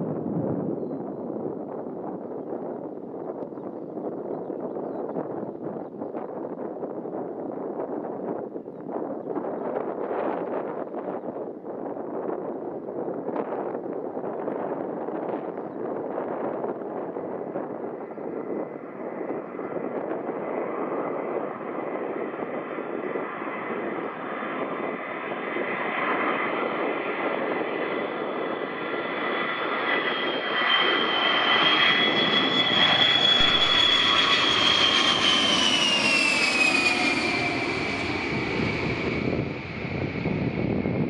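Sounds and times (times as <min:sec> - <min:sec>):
jet engines rumbling: 0:12.7 - 0:41.0
high engine whine: 0:29.4 - 0:41.0.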